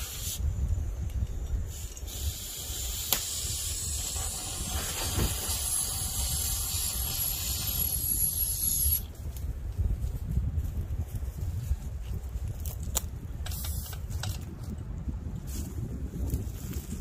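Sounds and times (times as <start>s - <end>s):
high hiss of pressurized spray: 0.0s - 0.4s, 1.7s - 9.1s
low wind rumble: 0.0s - 17.0s.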